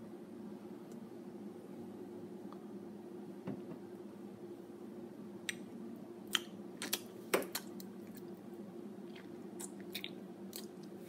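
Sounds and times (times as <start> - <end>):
faint steady hum: 0.0 - 11.0
wet mouth clicks and lip smacks: 9.1 - 10.9.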